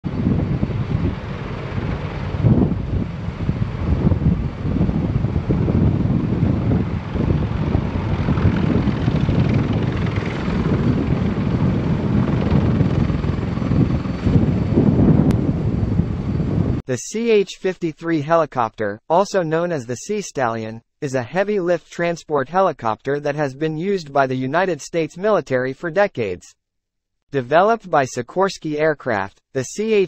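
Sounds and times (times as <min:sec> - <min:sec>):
helicopter rotors and turbines: 0:00.1 - 0:16.8.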